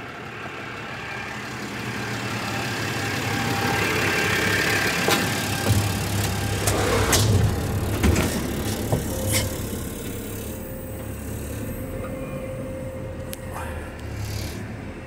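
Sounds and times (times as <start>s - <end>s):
diesel engine idling: 0.0s - 15.0s
knocks and rattles in cab: 5.1s - 10.0s.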